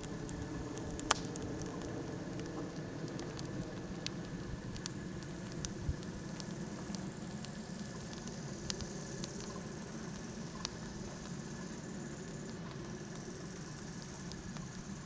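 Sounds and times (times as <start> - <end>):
wood fire crackling and popping: 0.0 - 15.0.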